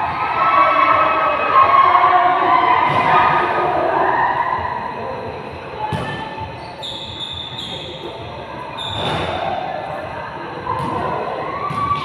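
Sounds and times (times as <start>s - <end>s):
players' voices echoing: 0.0s - 12.0s
sneakers squeaking on court: 5.9s - 9.3s.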